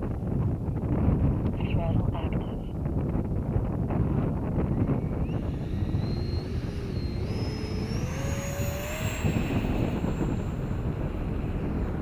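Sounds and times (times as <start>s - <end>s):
wind buffeting microphone: 0.0s - 12.0s
model jet engine whine: 2.6s - 12.0s.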